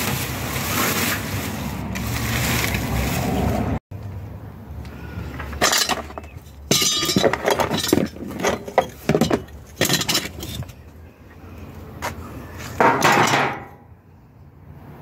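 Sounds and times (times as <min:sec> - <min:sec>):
metal latch rattling and scraping: 0:05.4 - 0:10.8, 0:12.8 - 0:13.8.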